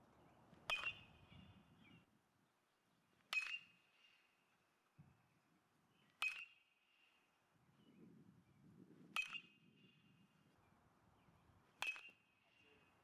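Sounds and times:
metal bat pinging ball: 0.7 - 1.1, 3.3 - 3.8, 6.2 - 6.6, 9.2 - 9.6, 11.8 - 12.3.

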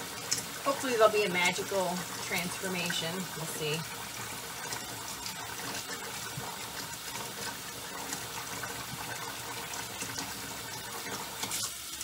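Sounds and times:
tap water running into sink: 0.0 - 12.0.

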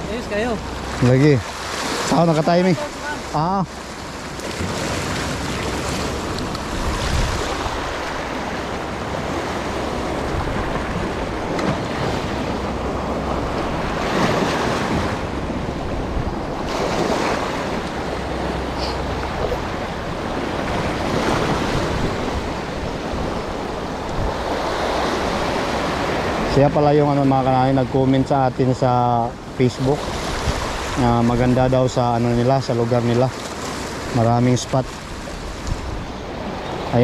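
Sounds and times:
sea waves washing in: 0.0 - 37.0
wind buffeting microphone: 4.3 - 26.5, 29.3 - 32.6, 34.8 - 36.9.

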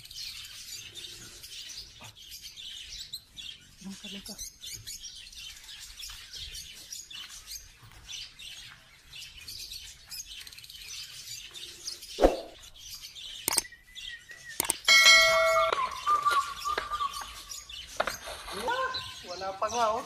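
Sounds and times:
bird chirping rapidly: 12.0 - 20.0
sharp clicks: 13.4 - 13.7, 14.6 - 14.9.

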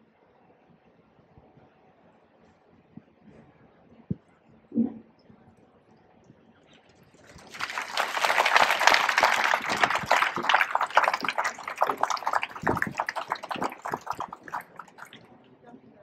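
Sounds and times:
crowd applauding: 7.2 - 15.2.

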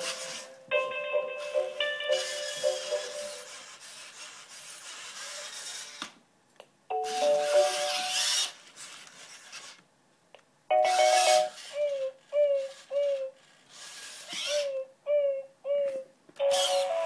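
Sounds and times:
hissy rasping electronic sound: 1.6 - 3.8
electronic chime tones: 6.9 - 8.1, 10.7 - 11.6.

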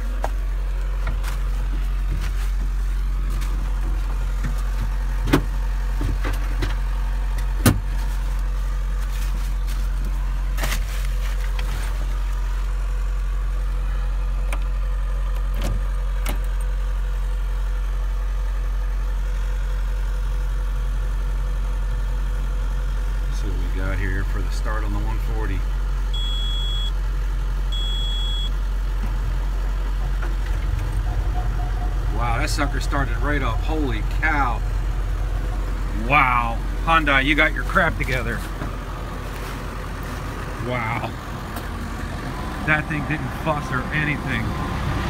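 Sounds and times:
diesel engine idling: 0.0 - 45.0
clicks and knocks in cab: 4.4 - 6.8, 7.4 - 7.9.

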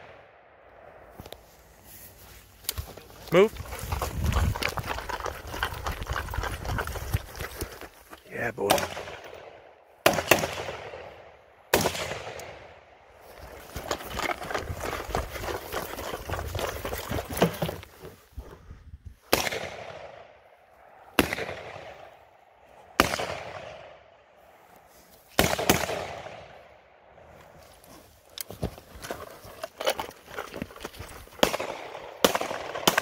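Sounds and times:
rustle and rattle of gear: 1.1 - 8.5, 13.1 - 19.2, 27.2 - 31.8
rifle shots echoing: 8.7 - 12.8, 21.2 - 22.1, 23.0 - 24.0, 25.4 - 26.6, 31.4 - 33.0.

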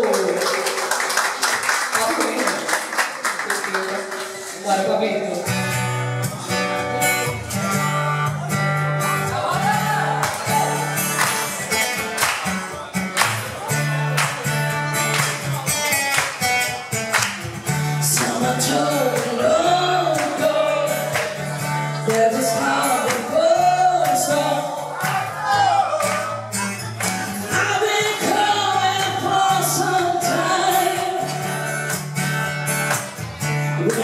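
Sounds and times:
strummed acoustic guitar: 5.3 - 34.0
woman singing into a microphone: 18.0 - 21.4, 22.0 - 25.0, 27.5 - 31.6.

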